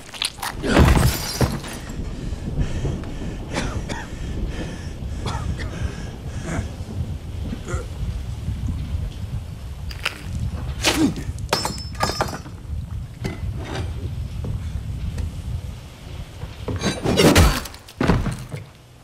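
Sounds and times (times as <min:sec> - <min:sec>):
glass breaking and clinking: 0:00.0 - 0:01.9, 0:11.5 - 0:12.6
low rumble: 0:00.0 - 0:16.9.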